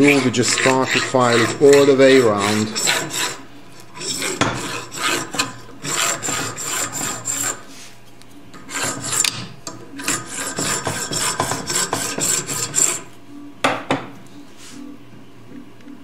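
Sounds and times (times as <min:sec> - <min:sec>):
hand file rasping on metal: 0:00.0 - 0:07.9, 0:08.6 - 0:13.1.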